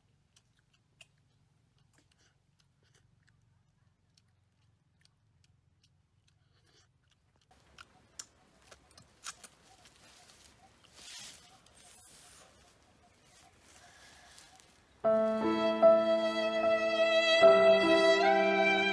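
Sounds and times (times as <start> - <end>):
forest background: 7.2 - 18.9
dry leaf rustling and clicking: 7.8 - 15.0
violin music: 15.0 - 18.9.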